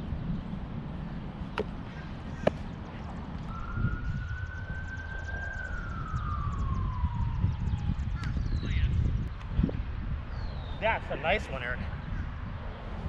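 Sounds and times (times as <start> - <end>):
wind rumble on microphone: 0.0 - 13.0
siren wailing: 3.5 - 8.5.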